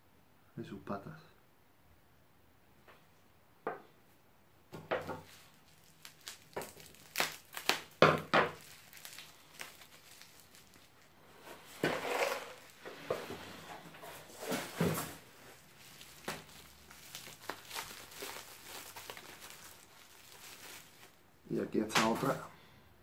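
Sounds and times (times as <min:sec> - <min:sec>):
packing wrap crinkling: 0:04.9 - 0:22.4.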